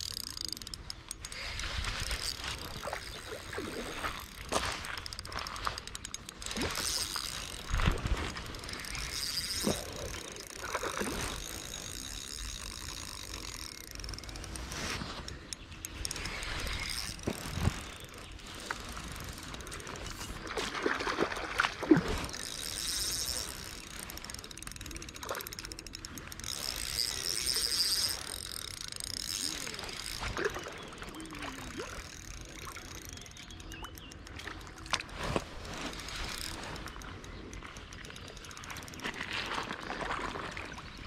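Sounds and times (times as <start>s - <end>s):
sharp clicks: 0.0s - 20.5s
fishing reel gears whirring: 0.0s - 41.0s.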